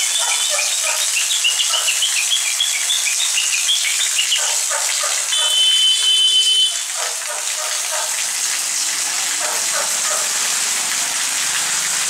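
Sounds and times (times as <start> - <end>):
birds chirping rapidly: 0.0 - 5.6
rain hissing: 0.0 - 12.0
water pouring onto wet ground: 0.0 - 12.0.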